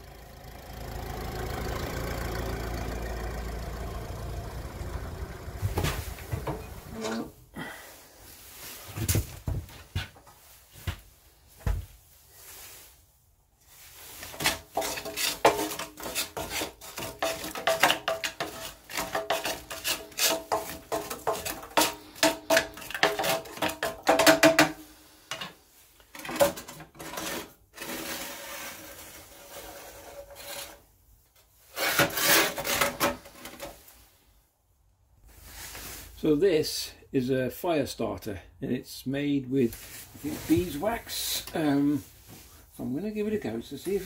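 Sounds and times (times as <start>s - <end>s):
stick scraping ash in stove grate: 14.1s - 24.2s.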